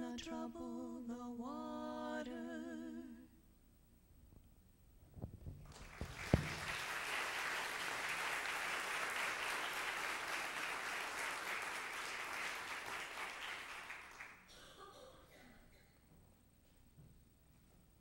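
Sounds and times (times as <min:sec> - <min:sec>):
congregation applauding: 0:05.6 - 0:14.5.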